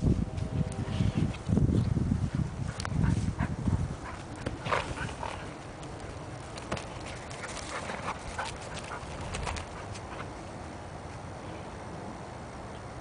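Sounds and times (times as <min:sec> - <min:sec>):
horse hooves thudding on grass: 0:01.2 - 0:10.4.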